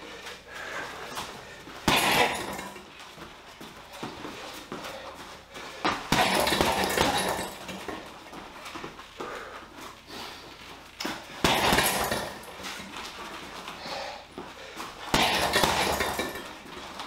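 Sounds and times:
footwork: 0.0 - 17.0
punches on heavy bag: 1.8 - 2.8, 5.8 - 8.0, 11.4 - 12.8, 15.1 - 16.4.

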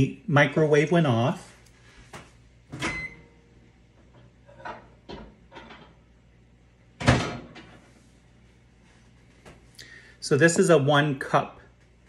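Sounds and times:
microwave door shutting: 2.7 - 3.3, 7.0 - 7.7.

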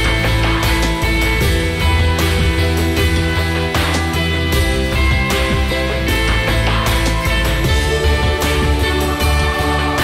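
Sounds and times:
music with heavy bass and beat: 0.0 - 10.0.

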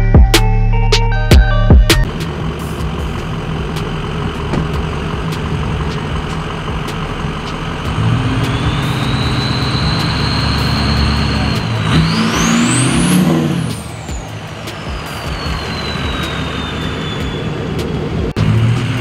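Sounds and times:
hip-hop beat: 0.0 - 19.0
pickup truck engine running: 1.4 - 19.0
high whine: 2.1 - 18.3.

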